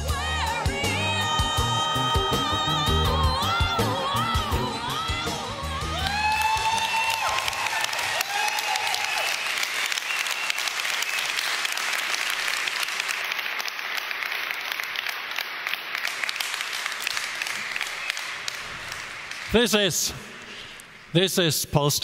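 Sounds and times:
audience cheering: 0:01.0 - 0:12.2
large audience applauding: 0:05.9 - 0:20.9.

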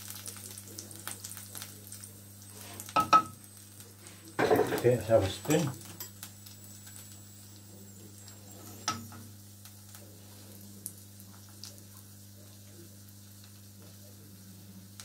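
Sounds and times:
faint sizzle in frying pan: 0:00.0 - 0:15.0
metal spoon knocking on pan: 0:03.0 - 0:03.4.

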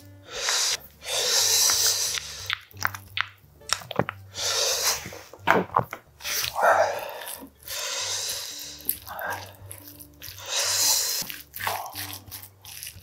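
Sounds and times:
long breaths through the nose: 0:00.2 - 0:02.5, 0:06.6 - 0:08.9.

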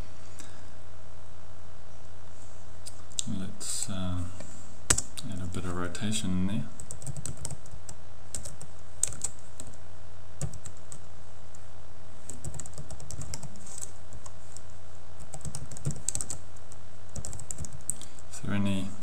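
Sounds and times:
steady low hum: 0:00.0 - 0:19.0
typing on keyboard: 0:06.8 - 0:09.8, 0:10.4 - 0:11.0, 0:12.3 - 0:13.9, 0:15.2 - 0:16.4, 0:17.2 - 0:18.0.

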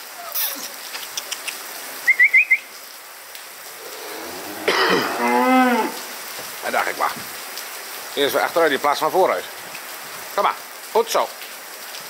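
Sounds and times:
rain pattering: 0:00.0 - 0:12.0
cow mooing: 0:03.7 - 0:06.2.

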